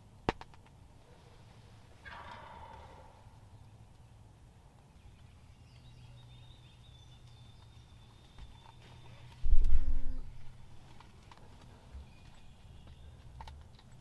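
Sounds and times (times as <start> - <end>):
turkey gobbling: 2.0 - 3.4.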